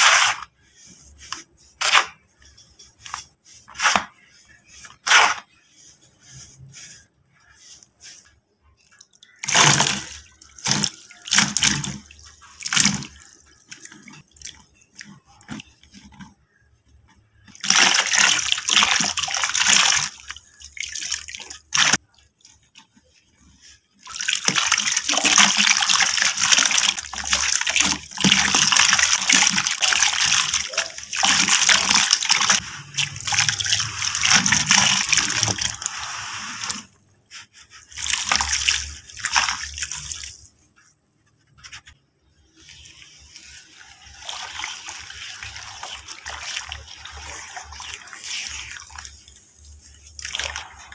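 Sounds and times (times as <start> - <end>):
dirt pouring into water: 24.1 - 37.0, 42.5 - 50.9.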